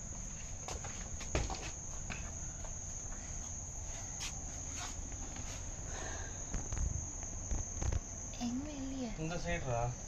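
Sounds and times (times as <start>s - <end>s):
crickets chirping: 0.0s - 10.0s.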